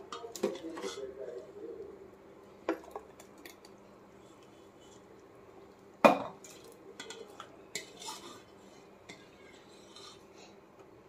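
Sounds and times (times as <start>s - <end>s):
ladle scraping metal pot: 7.0s - 10.3s.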